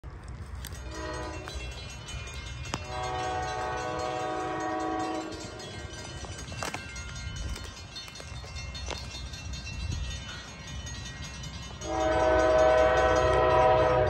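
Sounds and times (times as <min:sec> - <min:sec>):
low rumble of train: 0:00.0 - 0:14.0
grade-crossing bell ringing: 0:00.3 - 0:14.0
train horn blasts: 0:00.7 - 0:01.6, 0:02.7 - 0:05.6, 0:11.8 - 0:14.0.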